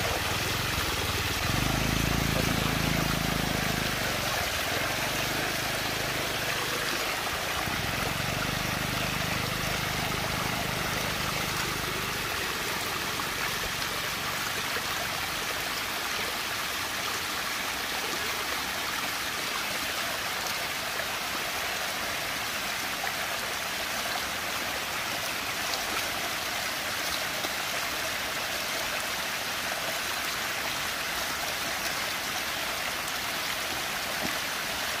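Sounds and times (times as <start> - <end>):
water rushing into whirlpool: 0.0 - 19.4.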